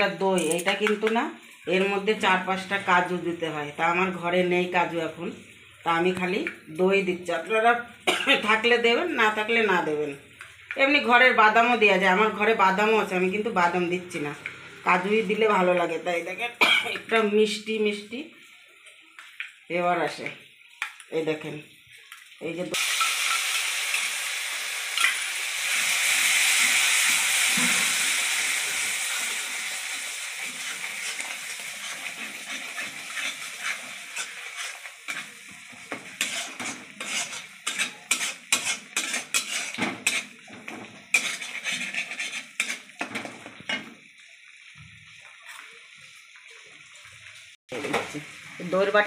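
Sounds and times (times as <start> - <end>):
yogurt sizzling in hot oil: 0.0 - 49.0
metal spatula scraping pan: 30.5 - 43.9.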